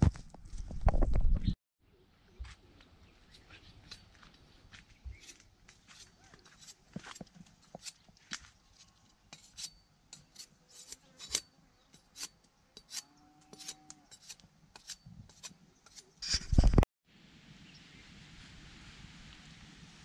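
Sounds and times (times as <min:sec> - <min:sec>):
knife scraping wooden stick: 0:03.4 - 0:04.2, 0:05.1 - 0:08.1, 0:09.3 - 0:16.8.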